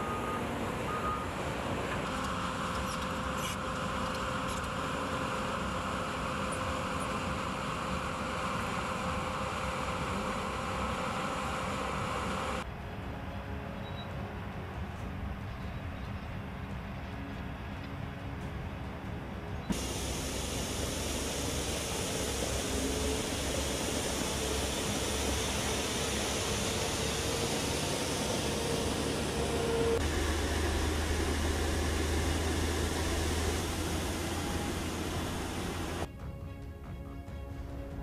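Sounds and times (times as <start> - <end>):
motor grader engine: 0.0 - 36.1
faint steady whine: 19.4 - 36.1.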